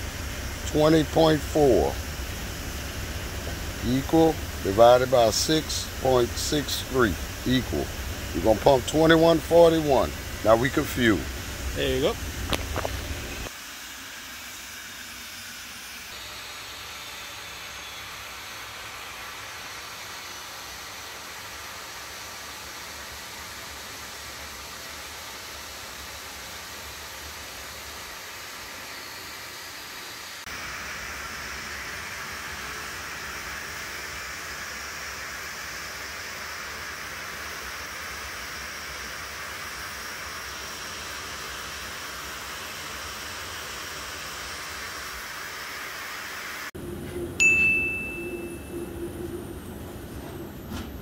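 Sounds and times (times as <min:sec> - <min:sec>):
jet engines idling: 0:00.0 - 0:51.0
bright ding: 0:47.4 - 0:49.0.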